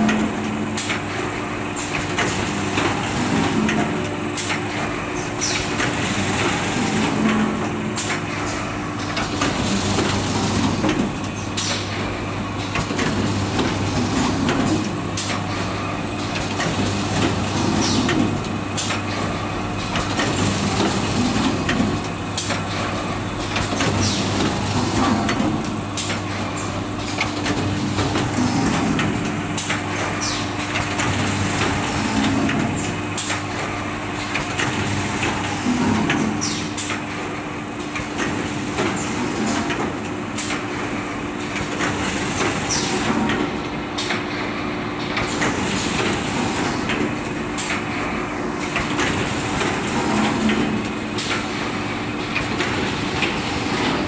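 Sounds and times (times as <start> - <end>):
machine clicks and knocks: 0.0 - 54.0
machine motors humming: 0.0 - 54.0.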